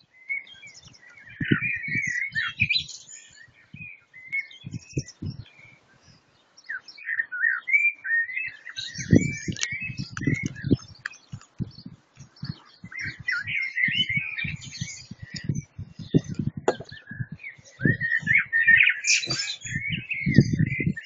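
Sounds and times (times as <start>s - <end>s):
songbirds singing: 0.0s - 21.0s
low thuds: 15.8s - 17.0s.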